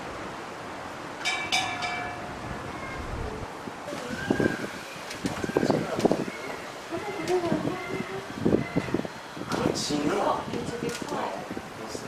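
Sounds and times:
wind rumbling on microphone: 0:00.0 - 0:12.0
people's voices: 0:02.7 - 0:12.0.

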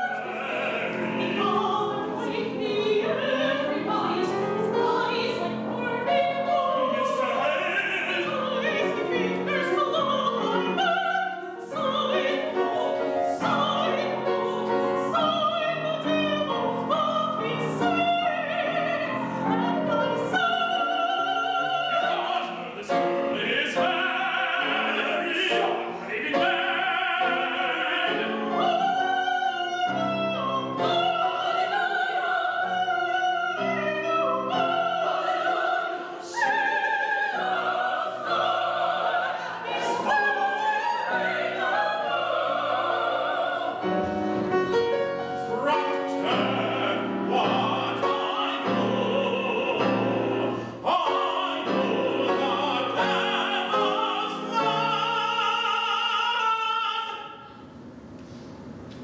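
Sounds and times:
woman singing opera: 0:00.0 - 0:44.0, 0:45.4 - 0:57.2
grand piano: 0:00.0 - 0:59.0.

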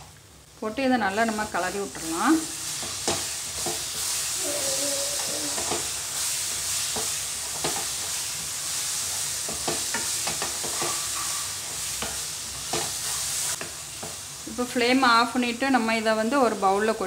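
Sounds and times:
mixture sizzling: 0:00.6 - 0:17.0.

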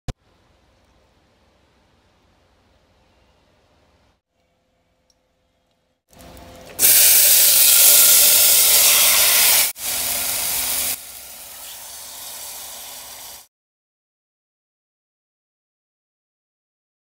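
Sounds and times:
chicken sizzling in hot fat: 0:06.8 - 0:13.5.

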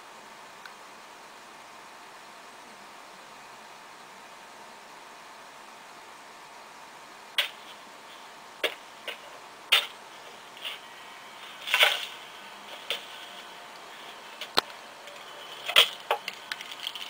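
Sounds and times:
steady hiss: 0:05.8 - 0:17.0.

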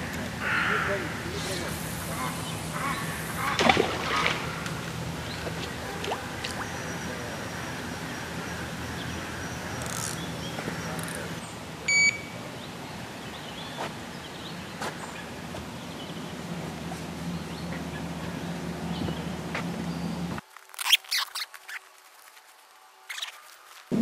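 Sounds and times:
electronic bite alarm beep: 0:11.9 - 0:12.4.

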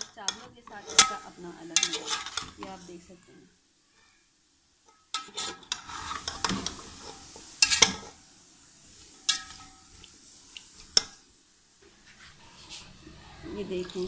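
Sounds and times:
metal spatula scraping pot: 0:00.0 - 0:03.1, 0:04.9 - 0:08.2, 0:09.2 - 0:10.0
faint sizzle: 0:00.0 - 0:14.0.

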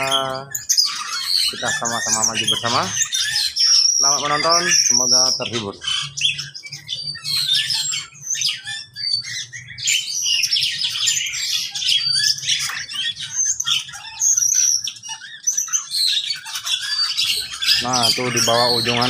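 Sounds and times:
caged birds chirping and squawking: 0:00.0 - 0:19.0.

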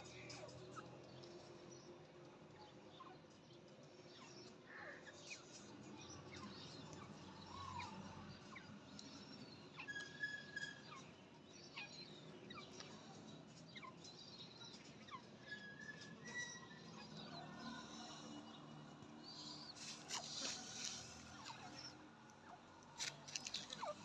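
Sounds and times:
faint bird chirps: 0:02.7 - 0:24.0.

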